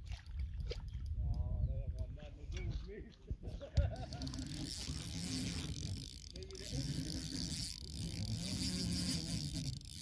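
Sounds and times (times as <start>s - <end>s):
fishing reel whirring: 4.0s - 10.0s.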